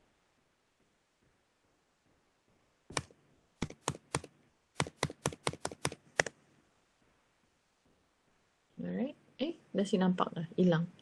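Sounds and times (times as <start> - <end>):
keyboard keystrokes: 2.9 - 6.3.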